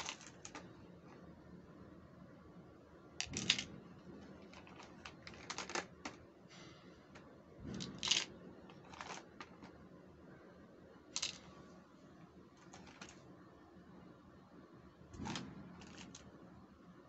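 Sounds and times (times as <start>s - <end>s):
plastic toys clicking and tapping: 0.0s - 0.7s, 3.2s - 3.7s, 4.4s - 6.2s, 7.7s - 9.7s, 11.2s - 11.5s, 12.6s - 13.2s, 15.2s - 16.2s.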